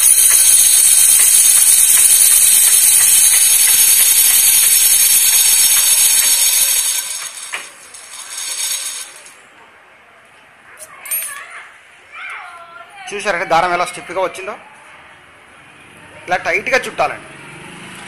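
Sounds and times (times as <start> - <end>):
sewing machine winding bobbin: 0.0 - 9.4.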